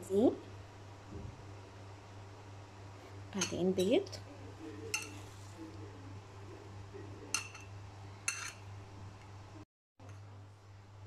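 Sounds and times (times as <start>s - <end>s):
steady low hum: 0.0s - 11.0s
fork clinking on ceramic plate: 4.9s - 5.2s, 7.3s - 7.7s, 8.3s - 8.6s.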